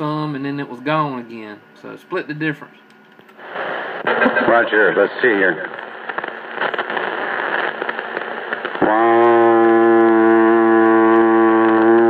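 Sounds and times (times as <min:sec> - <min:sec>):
radio static hiss: 0:00.0 - 0:12.0
steady buzzing hum: 0:00.0 - 0:12.0.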